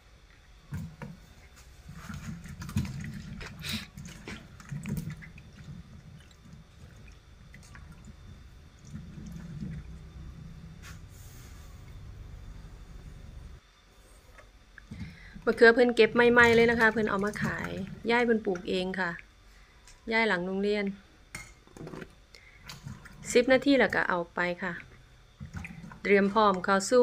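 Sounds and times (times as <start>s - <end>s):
water sloshing and splashing: 0.7s - 11.1s, 14.9s - 19.2s, 22.0s - 26.9s.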